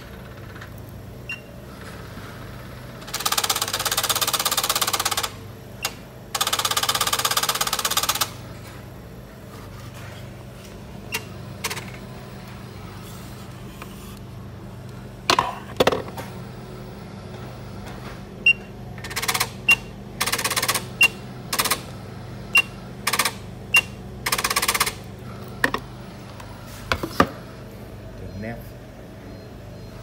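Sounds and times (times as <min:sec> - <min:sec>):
machine mechanism buzzing: 0:00.0 - 0:08.8, 0:18.9 - 0:26.5
steady low hum: 0:05.0 - 0:30.0.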